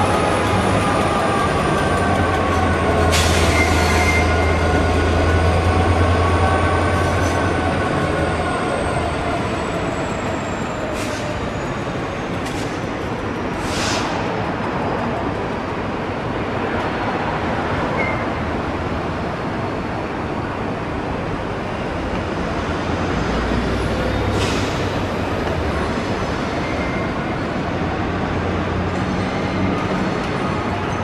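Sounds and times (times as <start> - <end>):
train wheels rumbling on track: 0.0 - 31.0
short steam hiss: 13.6 - 14.2.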